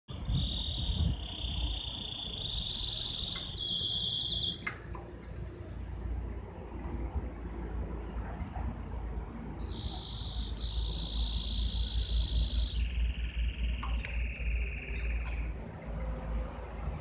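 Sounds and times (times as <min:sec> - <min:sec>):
canary singing trills: 0:00.1 - 0:04.9, 0:09.3 - 0:15.7.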